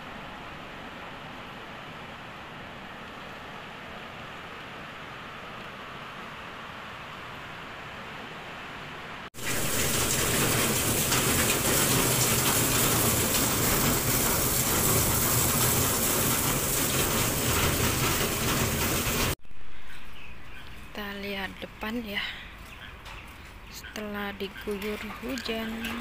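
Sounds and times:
heavy rain pouring down: 0:08.4 - 0:19.4.

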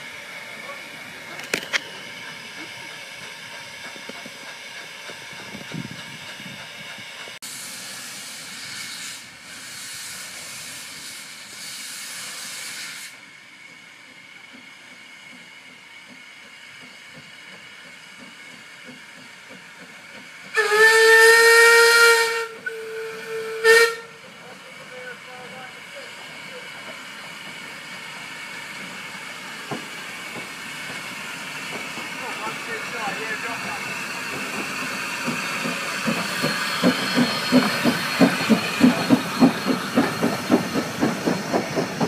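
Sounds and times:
steam hissing: 0:00.0 - 0:42.0
steam whistle blowing: 0:20.5 - 0:24.2.

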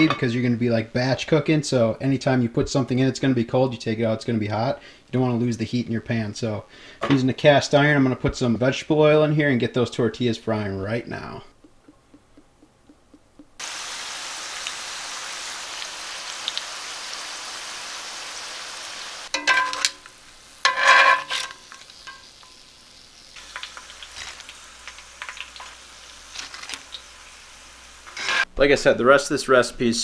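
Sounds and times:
tortillas sizzling in oil: 0:13.4 - 0:28.5
light crackles and clicks: 0:23.4 - 0:27.1.

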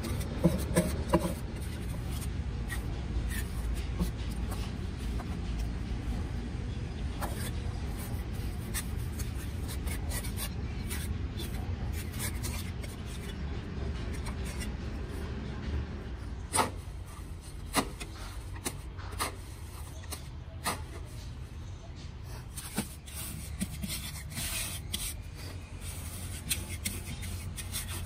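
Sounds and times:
trowel scraping wet mortar: 0:22.6 - 0:28.0.

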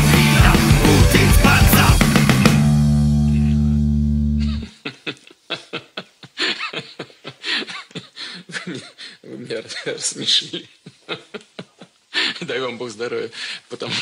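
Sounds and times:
electric guitar and bass chord: 0:00.0 - 0:04.7
person chuckling: 0:03.3 - 0:12.5.

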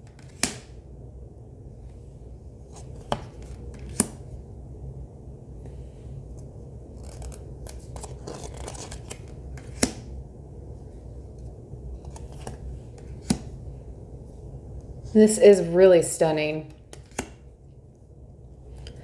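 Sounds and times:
low steady hum: 0:00.0 - 0:19.0
cards snapping: 0:00.1 - 0:00.7, 0:02.8 - 0:04.2, 0:07.0 - 0:10.1, 0:12.0 - 0:13.5, 0:16.9 - 0:17.4
cards sliding and rustling: 0:02.6 - 0:04.2, 0:06.4 - 0:10.0, 0:12.0 - 0:13.5, 0:16.9 - 0:17.4.

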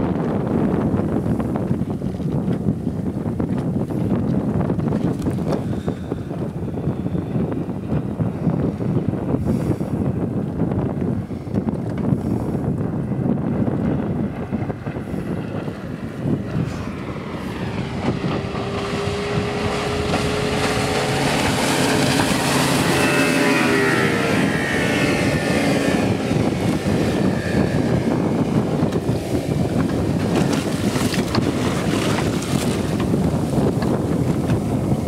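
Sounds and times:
outboard boat engine passing: 0:00.0 - 0:35.0
wind buffeting microphone: 0:00.0 - 0:35.0
rushing water: 0:16.6 - 0:35.0.

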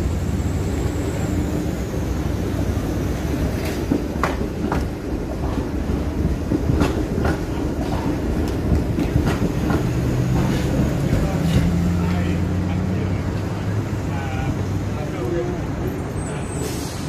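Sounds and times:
streetcar rumbling: 0:00.0 - 0:17.0
wheels clacking over rail joints: 0:00.6 - 0:13.6.

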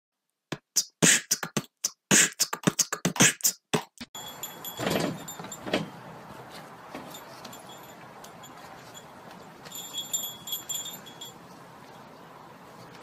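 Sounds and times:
beatboxing: 0:00.5 - 0:04.1.

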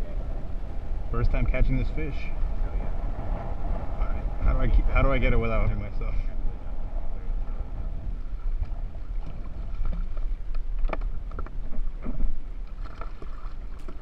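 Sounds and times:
wind rumbling on microphone: 0:00.0 - 0:14.0
water lapping: 0:08.2 - 0:14.0.

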